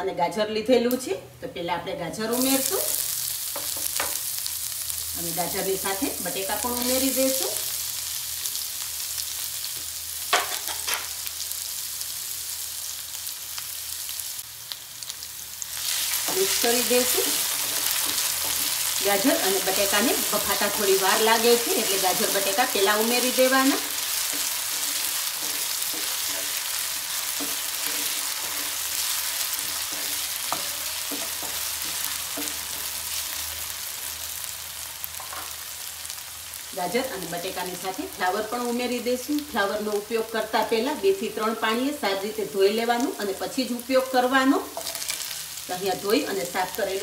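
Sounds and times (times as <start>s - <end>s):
vegetables sizzling in hot oil: 2.2s - 47.0s
spatula scraping pan: 15.8s - 33.2s.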